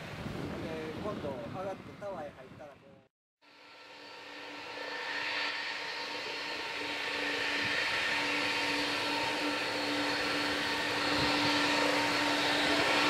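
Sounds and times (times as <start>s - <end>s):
jet engines whining: 3.4s - 13.0s.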